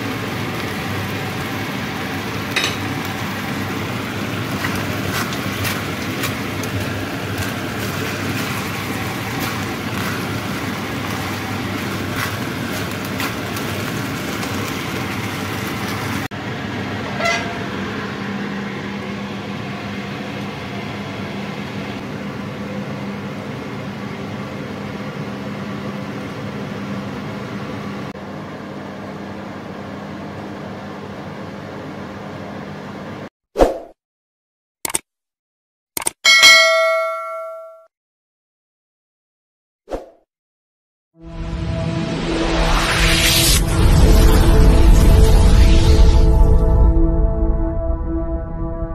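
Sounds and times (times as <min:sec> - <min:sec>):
sauce sizzling and bubbling in a wok: 0:00.0 - 0:32.8.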